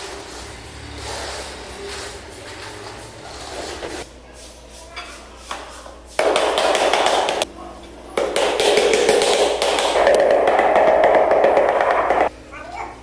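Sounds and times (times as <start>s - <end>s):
floor tile being tapped: 6.2s - 7.5s, 8.2s - 12.3s.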